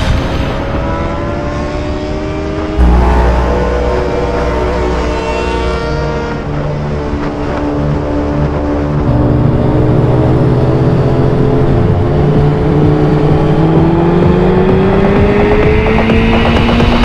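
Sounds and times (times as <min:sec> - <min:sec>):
motorcycle engine running: 0:02.8 - 0:07.0, 0:11.6 - 0:17.0.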